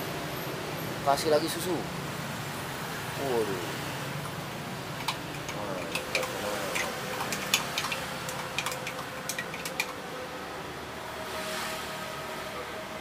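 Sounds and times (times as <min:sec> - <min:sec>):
steady background hum: 0:01.7 - 0:11.2
utensils clinking against glassware: 0:04.2 - 0:10.0.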